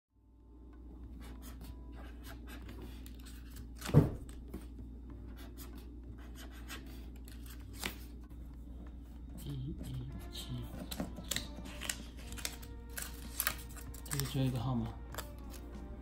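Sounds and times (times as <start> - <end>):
low steady hum: 0.1 - 16.0
pen scratching on paper: 1.1 - 3.4, 5.3 - 7.1.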